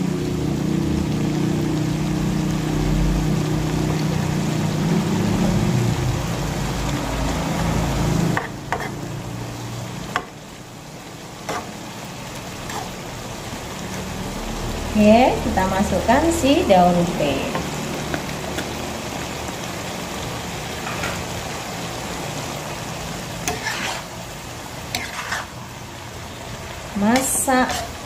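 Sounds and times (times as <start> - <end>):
food sizzling in a wok: 0.0 - 28.0
metal spatula scraping: 8.4 - 9.1, 11.4 - 11.8, 12.6 - 13.0, 23.4 - 24.2, 24.9 - 25.6, 27.2 - 28.0
spatula tapping pan: 10.1 - 10.4.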